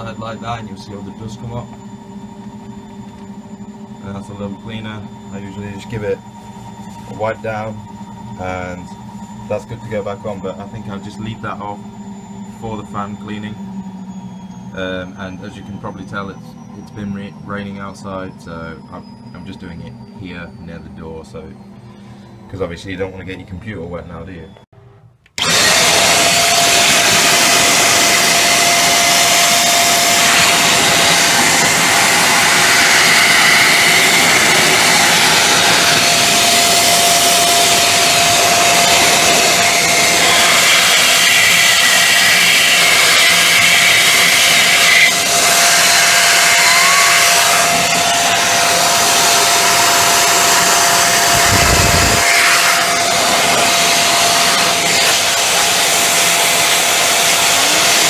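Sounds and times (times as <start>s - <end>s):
electric air duster blowing: 25.4s - 58.0s.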